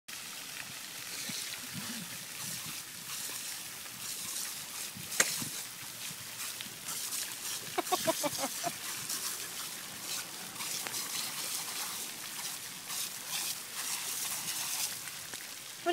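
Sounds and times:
fountain water splashing: 0.1s - 15.9s.

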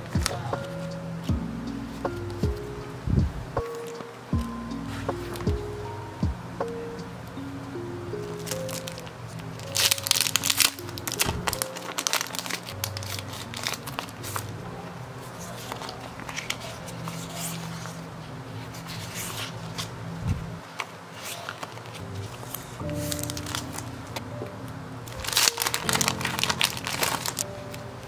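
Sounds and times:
soft background music: 0.0s - 28.0s
plastic packaging crinkling: 8.3s - 14.5s, 20.8s - 23.9s, 25.1s - 27.5s.

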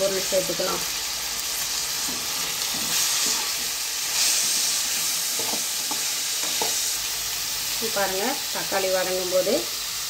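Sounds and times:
vegetables sizzling in oil: 0.0s - 10.0s
metal spatula scraping a pan: 2.0s - 6.8s.

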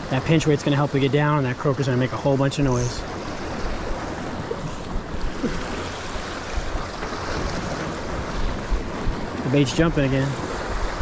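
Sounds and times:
surf washing against rocks: 0.0s - 11.0s
wind on microphone: 2.7s - 11.0s.

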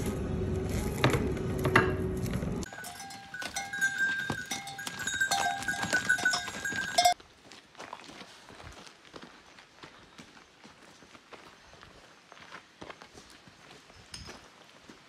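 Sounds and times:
livestock bells clinking: 2.6s - 7.2s.

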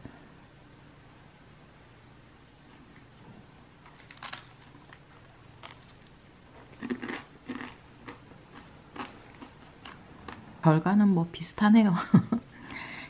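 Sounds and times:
crunching and chewing: 2.5s - 10.6s.

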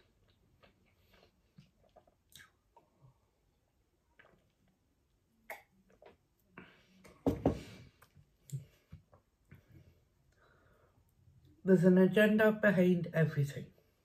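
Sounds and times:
mouth clicks and swallows: 0.3s - 3.1s, 5.4s - 6.5s.

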